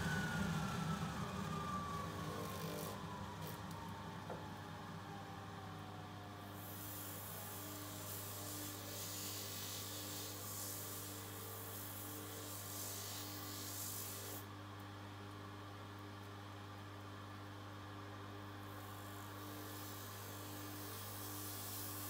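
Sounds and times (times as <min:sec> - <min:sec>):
polishing machine motor humming: 0:00.0 - 0:04.4
metal rubbing on polishing wheel: 0:06.6 - 0:14.4.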